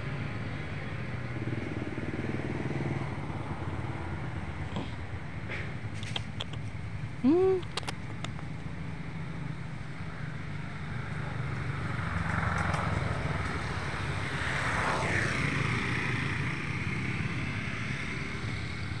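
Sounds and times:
motor vehicle passing by: 0:00.0 - 0:06.7, 0:08.0 - 0:19.0.

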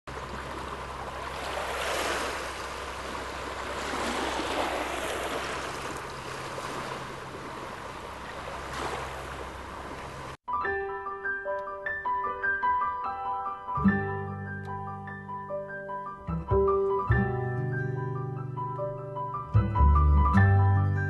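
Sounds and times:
small waves washing onto beach: 0:00.1 - 0:10.4.

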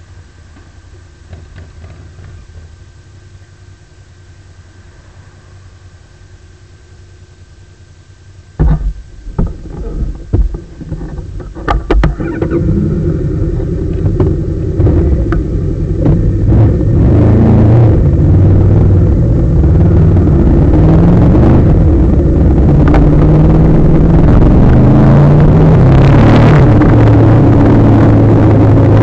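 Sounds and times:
motorcycle engine running: 0:00.0 - 0:29.0
motorcycle knocks and clunks: 0:01.3 - 0:02.7, 0:08.6 - 0:12.6, 0:13.9 - 0:16.3
wind noise: 0:08.6 - 0:29.0.

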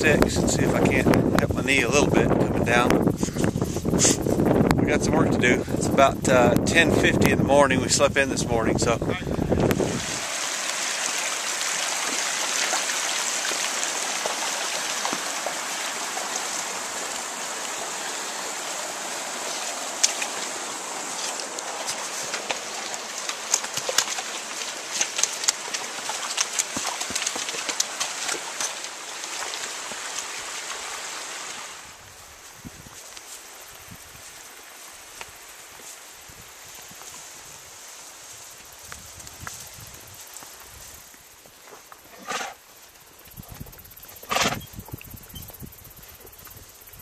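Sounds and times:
rocky creek rushing: 0:07.8 - 0:32.5
hooves stepping on rocks: 0:09.0 - 0:31.6.

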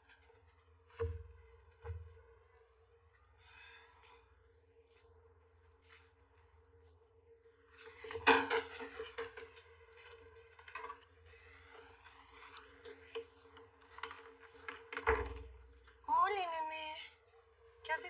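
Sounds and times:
knocks and light clatter: 0:00.0 - 0:02.8, 0:07.8 - 0:16.1.

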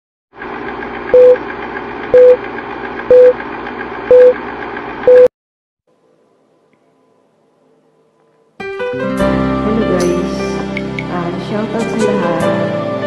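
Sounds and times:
short beeps: 0:01.2 - 0:01.4, 0:02.2 - 0:02.4, 0:03.1 - 0:03.4, 0:04.1 - 0:04.4, 0:05.1 - 0:05.3.

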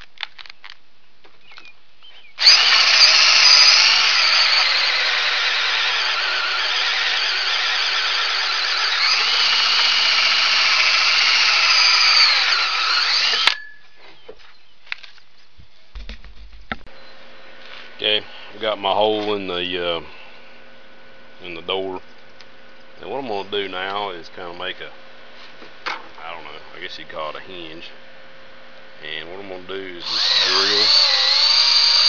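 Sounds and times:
drill with hole saw whining: 0:02.4 - 0:13.8, 0:29.8 - 0:32.0.

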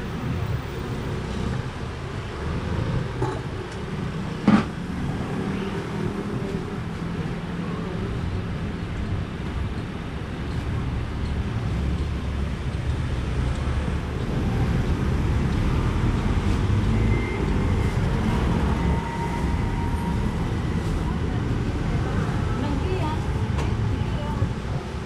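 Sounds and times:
road traffic rumble: 0:00.0 - 0:25.0.

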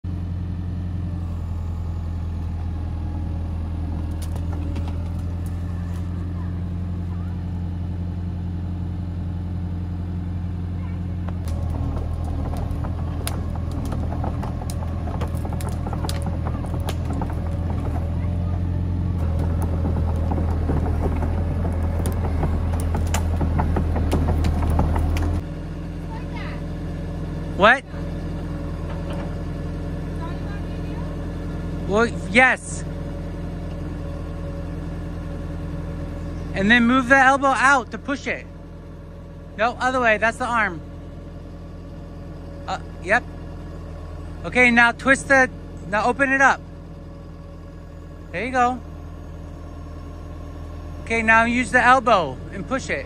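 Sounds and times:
excavator diesel engine humming: 0:00.0 - 0:53.0.

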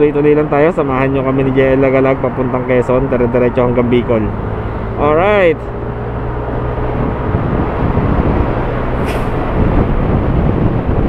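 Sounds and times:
wind and road noise: 0:00.0 - 0:11.0
short hiss: 0:09.0 - 0:09.5.

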